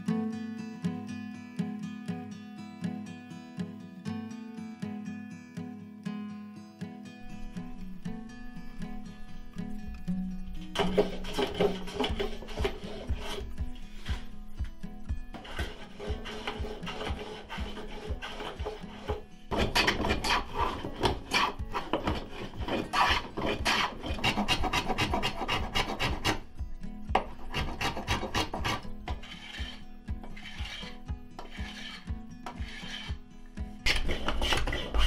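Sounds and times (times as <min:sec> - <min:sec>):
soft background music: 0:00.0 - 0:35.0
rasping scrape on wood: 0:10.6 - 0:26.5, 0:27.2 - 0:35.0.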